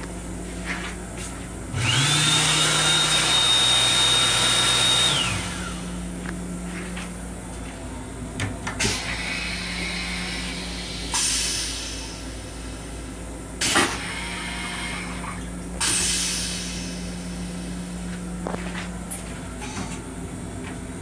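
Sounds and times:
rail car hum: 0:00.0 - 0:02.1, 0:04.9 - 0:21.0
pneumatic toilet air hiss: 0:08.8 - 0:12.8, 0:15.8 - 0:17.8.

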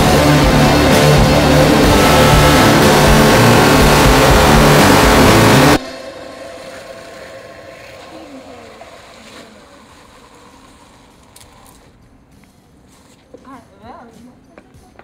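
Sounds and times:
distorted industrial music: 0:00.0 - 0:06.1
faint drone with wavering tones: 0:00.0 - 0:10.7.

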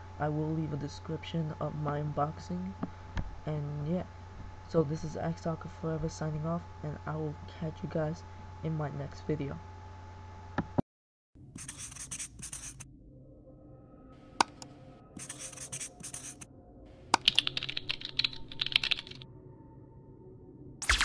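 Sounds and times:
marker squeaking on a board: 0:11.6 - 0:12.8, 0:15.2 - 0:16.4.

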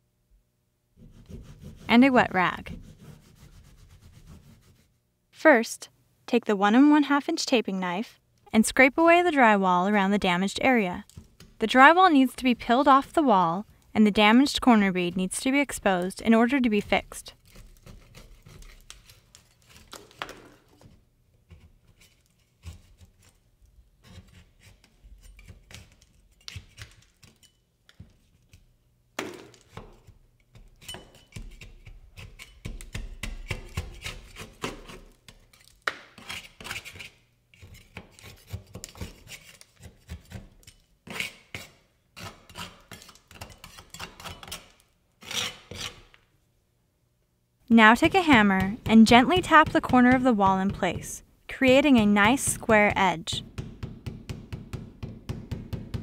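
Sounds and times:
knife scraping drywall: 0:01.0 - 0:02.0, 0:02.6 - 0:04.9, 0:12.2 - 0:28.7, 0:29.6 - 0:46.2.

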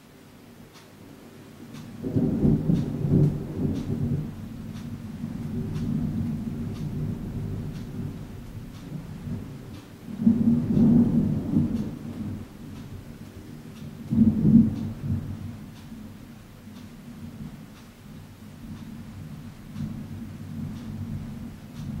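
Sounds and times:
thunder rumbling: 0:02.0 - 0:16.2, 0:19.0 - 0:22.0.

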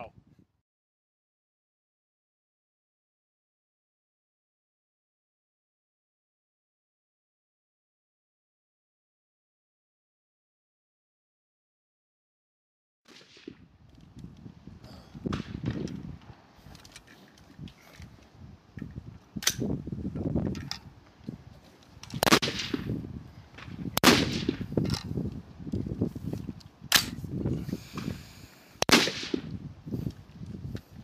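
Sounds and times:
low wind rumble on microphone: 0:00.0 - 0:00.6, 0:13.4 - 0:31.0
rifle shots cracking: 0:13.1 - 0:13.6, 0:22.2 - 0:23.0, 0:23.6 - 0:24.7, 0:28.8 - 0:29.5.

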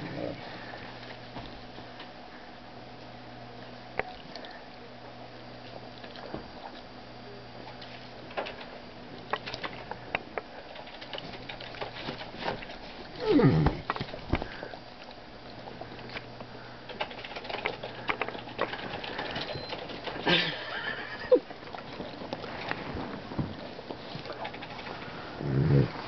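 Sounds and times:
bedding rustling: 0:21.8 - 0:26.0.

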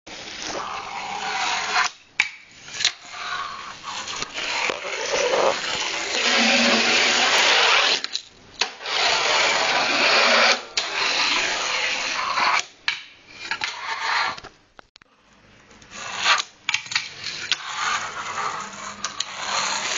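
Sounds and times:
fingerboard wheels rolling and grinding: 0:00.1 - 0:14.5, 0:15.8 - 0:19.9.

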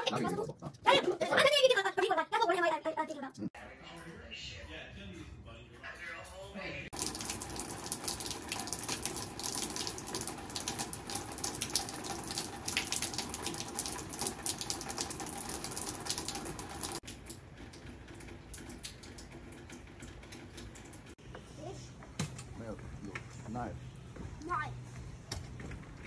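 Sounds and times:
rain falling: 0:06.9 - 0:21.2.

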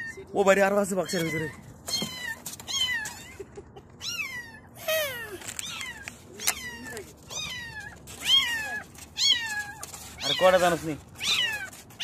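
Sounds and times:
kittens mewing: 0:00.0 - 0:12.0.

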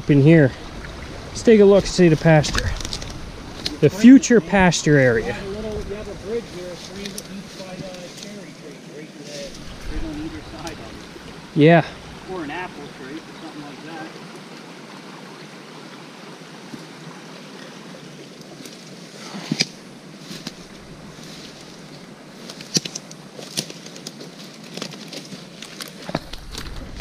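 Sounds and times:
brook rushing over rocks: 0:00.0 - 0:27.0
dry twigs snapping: 0:02.5 - 0:03.8, 0:06.8 - 0:08.4, 0:22.4 - 0:27.0
footsteps through dead brush: 0:05.6 - 0:08.5, 0:09.2 - 0:10.7, 0:19.6 - 0:27.0.

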